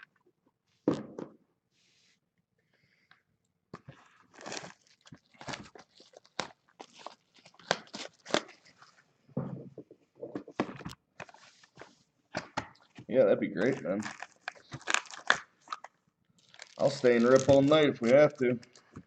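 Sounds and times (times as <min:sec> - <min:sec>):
plastic wrapping crinkling and tearing: 0:03.9 - 0:09.0, 0:12.7 - 0:19.0.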